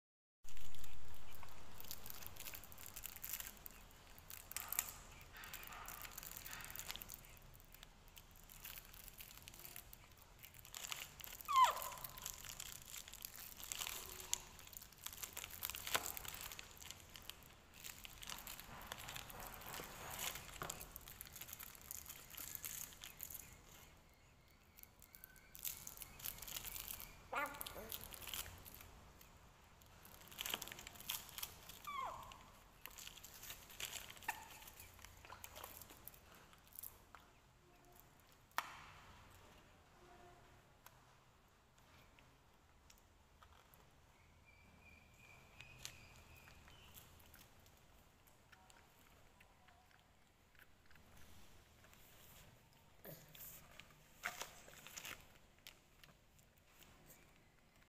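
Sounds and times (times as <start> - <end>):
plastic bag crinkling: 0.5 - 23.9, 24.7 - 37.2, 53.1 - 57.9
short squeaky calls: 11.2 - 12.4, 31.7 - 32.5.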